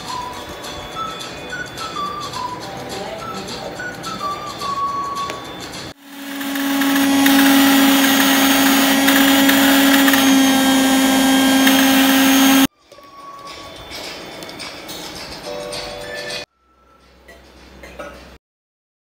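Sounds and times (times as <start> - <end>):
mixer grinder motor whine: 6.0 - 12.7.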